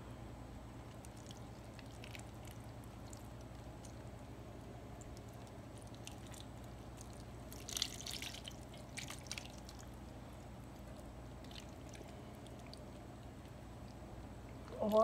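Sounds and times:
low steady hum: 0.0 - 15.0
sauce dripping and spattering: 0.9 - 4.1, 5.0 - 10.0.

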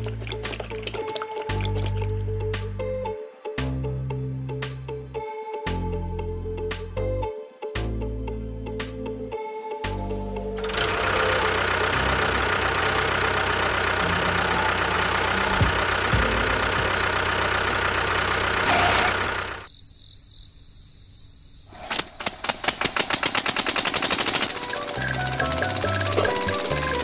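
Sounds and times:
small engine rattling and chugging: 10.6 - 19.7, 22.0 - 27.0.

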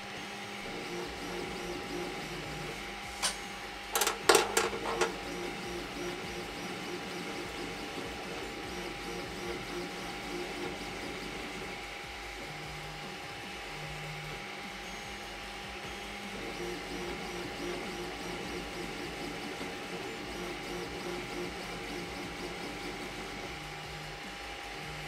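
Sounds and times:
printer stepper motors whining: 0.0 - 25.0
sharp clicks and knocks: 4.0 - 5.2.

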